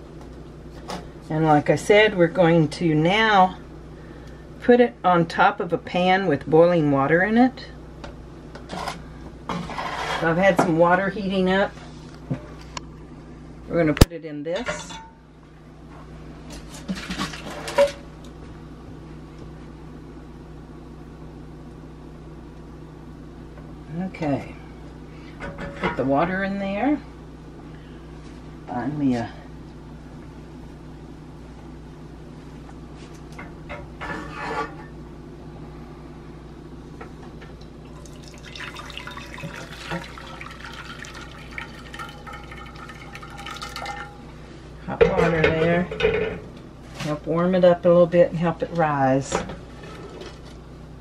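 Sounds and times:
steady low hum: 0.0s - 51.0s
water pouring into glass dish: 37.9s - 44.2s.

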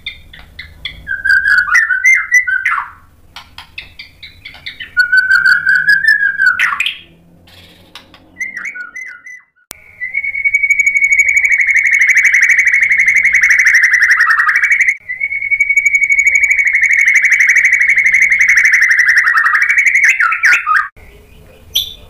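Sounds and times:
bird singing whistled phrases: 0.0s - 3.1s, 3.8s - 21.1s
long fast-trilling bird note: 4.8s - 20.9s.

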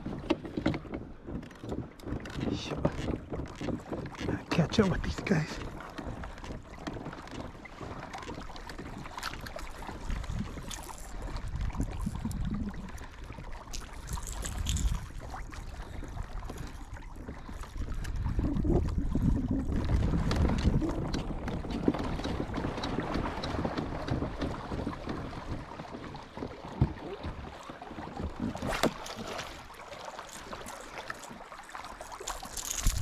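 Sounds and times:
small boat moving on water: 0.0s - 33.0s
wind gusting on microphone: 10.1s - 13.0s, 17.8s - 24.6s.

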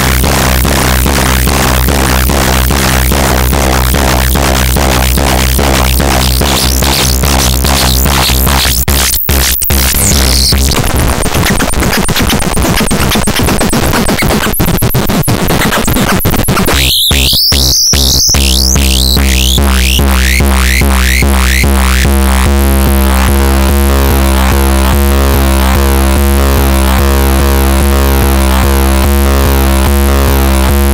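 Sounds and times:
low synthesizer drone: 0.0s - 10.8s, 16.8s - 30.9s
fast repeating pulse: 0.0s - 30.9s
harsh noisy feedback tones: 0.0s - 30.9s
rising synth chirps: 16.8s - 20.1s.

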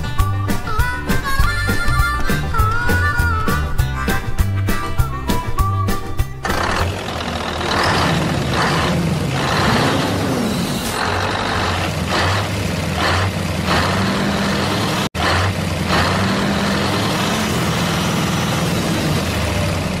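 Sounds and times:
truck engine running: 0.0s - 20.0s.

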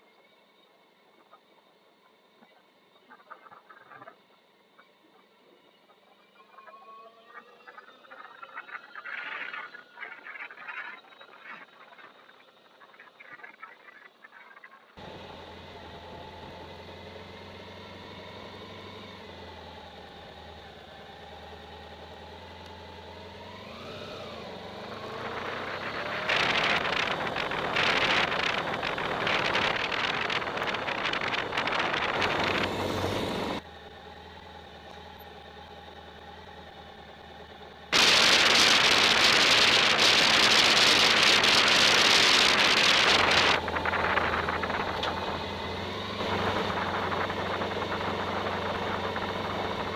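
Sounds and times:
vehicle engine humming: 15.0s - 49.9s
wind rushing over microphone: 25.0s - 33.6s, 38.0s - 49.9s.

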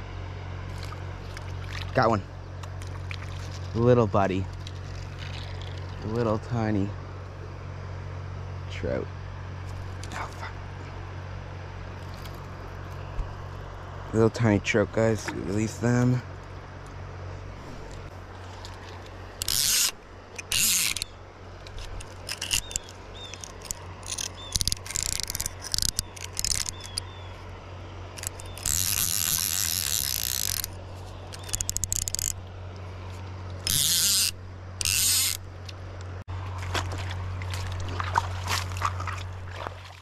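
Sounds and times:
fishing reel ratchet buzzing: 19.3s - 27.1s, 28.2s - 32.4s, 33.6s - 35.5s.

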